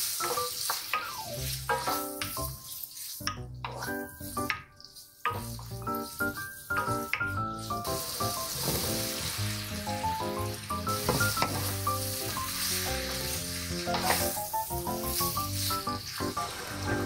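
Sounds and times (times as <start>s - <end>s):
vegetables sizzling in a pan: 0.0s - 17.0s
wooden spoon stirring: 0.2s - 10.1s
background music: 0.4s - 17.0s.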